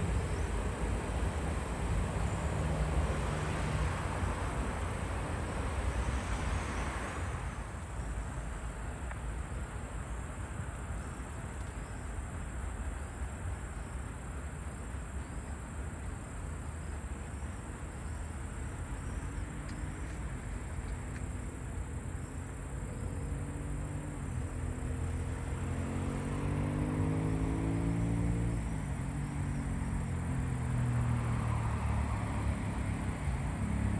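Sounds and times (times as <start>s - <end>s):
crickets chirring: 0.0s - 33.9s.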